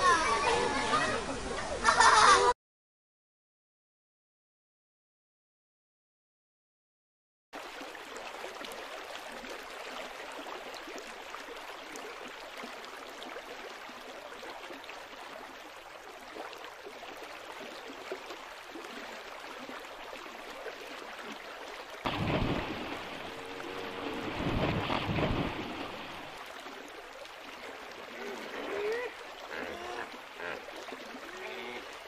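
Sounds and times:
running water: 0.0 - 2.5, 7.6 - 32.0.

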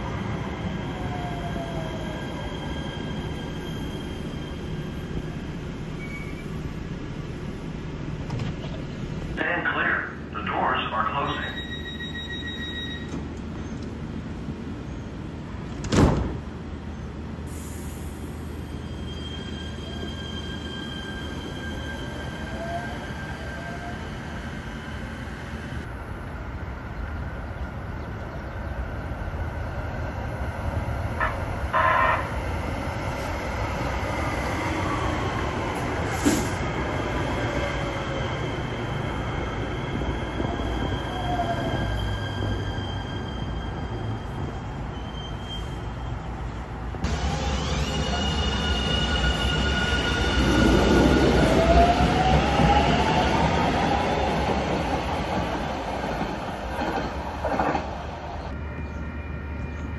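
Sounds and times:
train wheel squeal: 0.5 - 5.1, 5.9 - 6.7, 11.3 - 13.2, 18.2 - 25.5, 39.7 - 46.3, 47.3 - 53.6.

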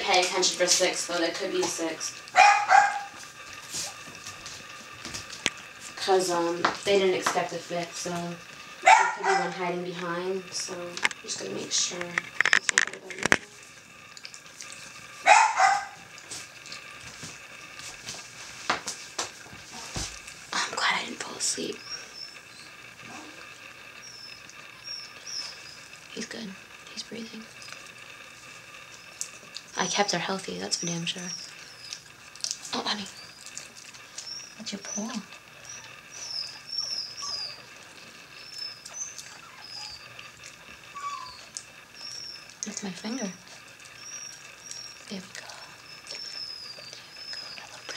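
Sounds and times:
puppies squeaking: 2.3 - 3.2, 8.8 - 9.7, 15.3 - 16.2, 21.6 - 23.4, 24.0 - 26.0, 30.7 - 32.1, 32.7 - 47.9
small dog yelp: 2.4 - 3.2, 8.8 - 9.6, 15.2 - 16.1, 41.0 - 42.4.

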